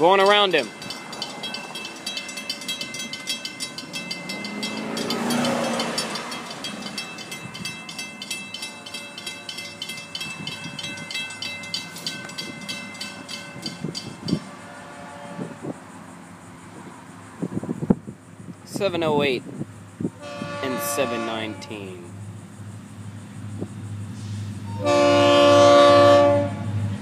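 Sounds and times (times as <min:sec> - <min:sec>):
crossing warning bell ringing: 0:00.0 - 0:15.6, 0:20.2 - 0:22.2
car passing: 0:00.0 - 0:17.9.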